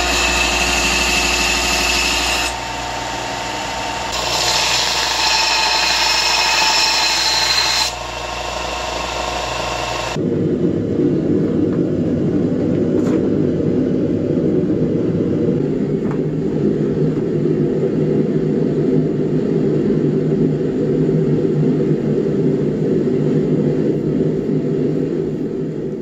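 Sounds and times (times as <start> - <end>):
forge burner rushing: 0.0 - 26.0.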